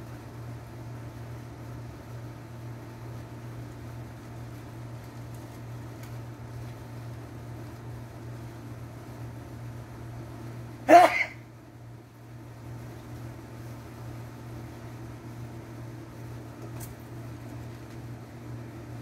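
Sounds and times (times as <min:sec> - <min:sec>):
low machine hum with hiss: 0:00.0 - 0:19.0.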